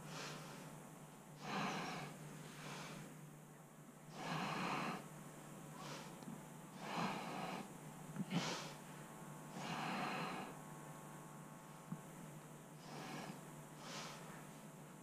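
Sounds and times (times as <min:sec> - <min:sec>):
person breathing close to microphone: 0:00.0 - 0:00.8, 0:01.4 - 0:03.2, 0:04.1 - 0:05.1, 0:05.7 - 0:10.6, 0:12.8 - 0:14.5.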